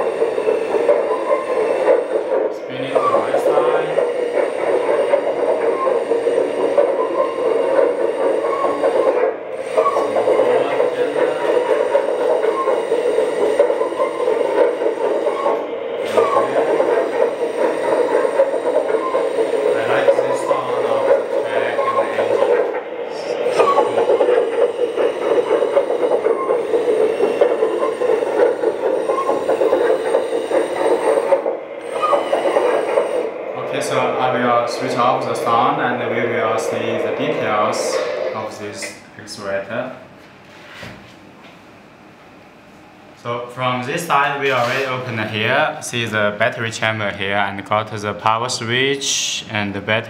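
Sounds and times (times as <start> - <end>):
model excavator grinding hum: 0.0 - 38.5.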